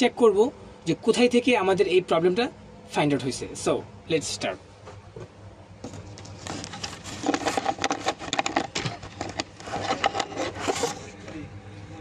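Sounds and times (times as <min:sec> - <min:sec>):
handling clicks and knocks: 0:05.8 - 0:10.8.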